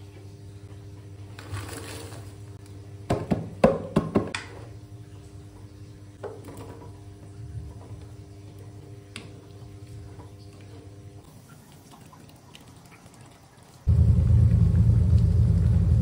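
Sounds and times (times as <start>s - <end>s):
frozen vegetables clattering into wok: 1.4s - 2.4s
steady low hum: 13.9s - 16.0s.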